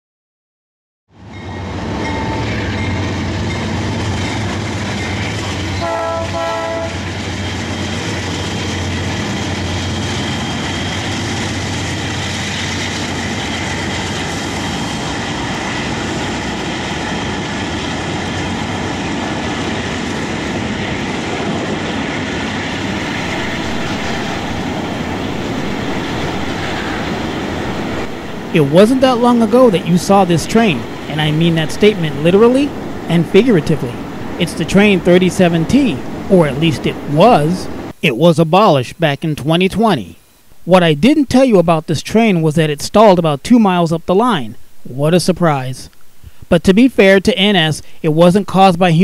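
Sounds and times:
diesel locomotives rumbling: 1.1 - 49.0
freight cars rattling on rails: 1.3 - 37.9
train horn blast: 5.8 - 7.1.

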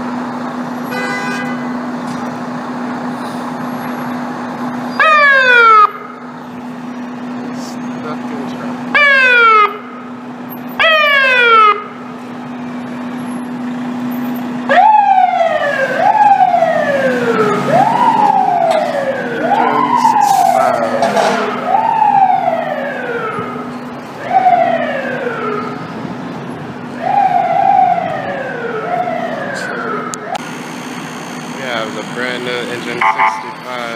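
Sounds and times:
fire engine siren wailing: 0.0 - 33.9
traffic noise: 0.0 - 33.9.

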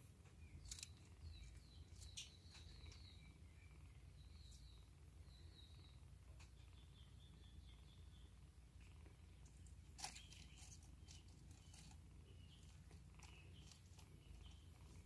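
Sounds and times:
faint high chirps: 0.2 - 15.0
kittens scuffling and tapping: 9.4 - 15.0.

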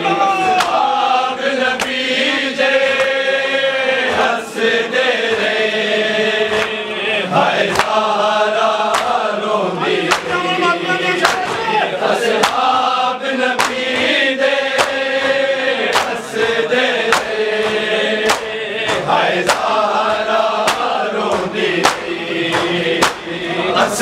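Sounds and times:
men chanting together: 0.0 - 24.0
chest-beating slaps: 0.4 - 0.9, 1.8 - 2.1, 2.8 - 3.2, 6.4 - 6.9, 7.6 - 8.1, 8.8 - 9.3, 10.0 - 10.4, 11.2 - 12.8, 13.5 - 23.5.

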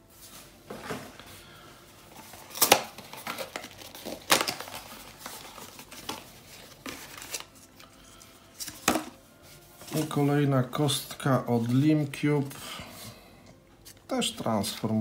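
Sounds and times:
plastic packaging crinkling: 2.0 - 12.7.

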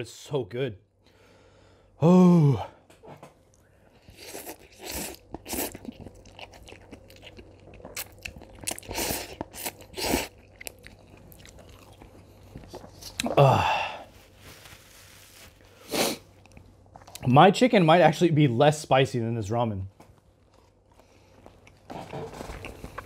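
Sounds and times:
chewing: 3.5 - 13.4, 20.4 - 23.0
noodle slurping: 4.0 - 10.8.

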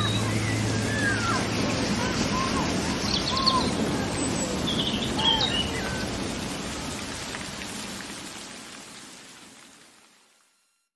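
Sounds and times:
birds chirping: 0.0 - 6.2
rain falling: 0.0 - 10.8.

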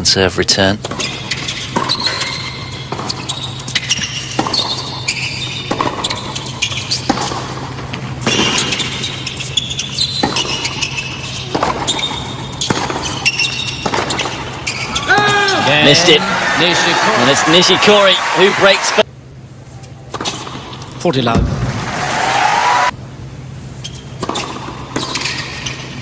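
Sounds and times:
shoes squeaking on hard court: 0.8 - 15.3, 23.8 - 26.0
rackets striking tennis ball: 0.8 - 15.5, 20.1 - 22.0, 23.9 - 25.9.

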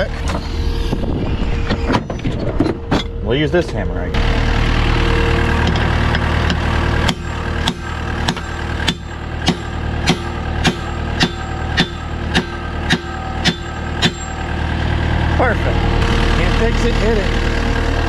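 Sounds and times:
engine idling: 0.0 - 18.0
hammer striking steel: 5.6 - 14.5.

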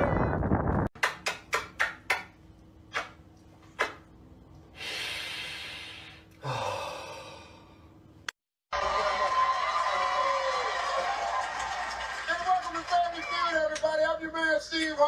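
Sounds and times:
lip smacks kissing: 2.9 - 4.0
breathy exhale: 4.8 - 7.9.

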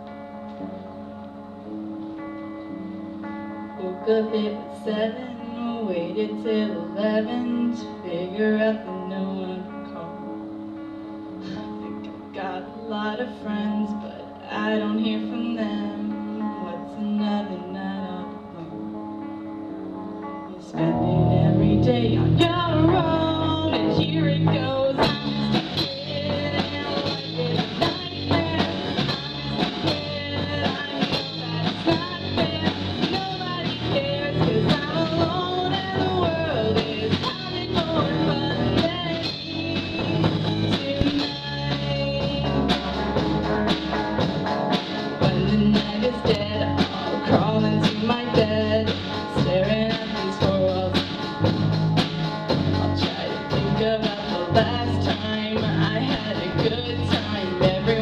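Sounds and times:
electric guitars: 0.0 - 58.0
girl singing into microphone: 3.8 - 10.4, 11.4 - 18.8, 20.5 - 43.0, 45.2 - 51.1, 52.9 - 58.0
drum kit: 20.8 - 58.0
electric bass: 20.8 - 58.0.

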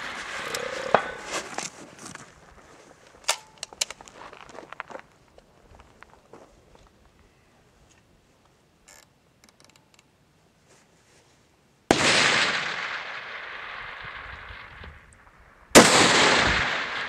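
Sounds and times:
rifle shot with echo: 11.9 - 15.1, 15.8 - 17.0.

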